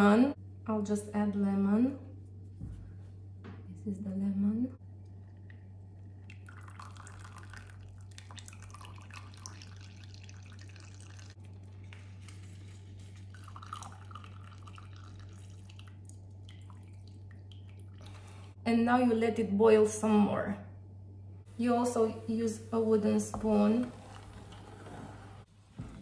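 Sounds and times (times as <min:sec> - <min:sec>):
steady low hum: 0:00.0 - 0:26.0
juice dripping into milk: 0:04.9 - 0:11.9, 0:13.2 - 0:18.4.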